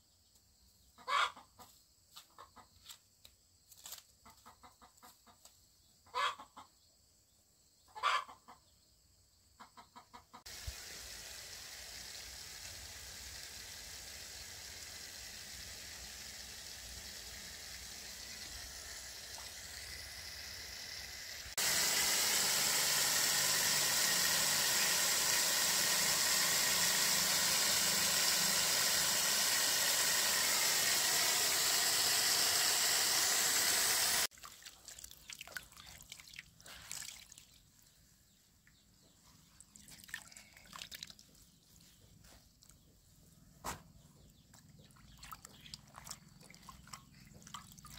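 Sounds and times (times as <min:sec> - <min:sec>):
chicken calling: 0:01.0 - 0:01.5, 0:06.1 - 0:06.6, 0:07.9 - 0:08.5
hose water into metal basin: 0:10.5 - 0:37.4, 0:44.9 - 0:47.9.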